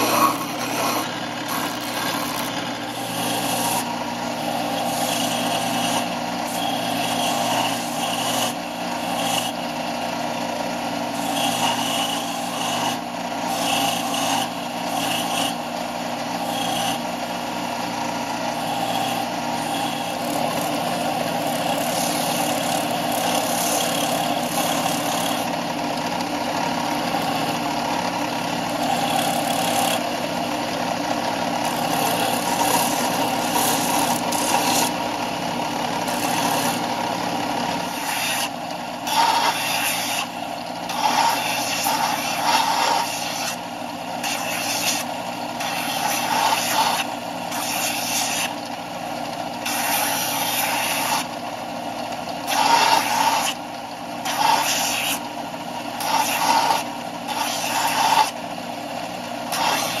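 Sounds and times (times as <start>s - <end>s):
wood scratching on sanding belt: 0.0s - 9.6s, 18.6s - 25.5s, 28.4s - 30.0s, 31.6s - 35.0s, 36.0s - 36.9s, 37.8s - 43.6s, 44.2s - 48.6s, 49.6s - 51.3s, 52.5s - 53.6s, 54.2s - 55.2s, 56.0s - 58.4s, 59.5s - 60.0s
belt sander motor hum: 0.0s - 60.0s.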